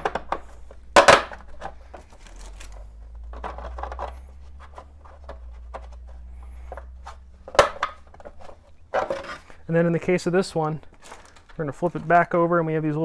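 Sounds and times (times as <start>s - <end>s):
hard plastic knocks and clicks: 0.0s - 1.8s, 6.7s - 9.3s
faint low hum: 0.0s - 13.0s.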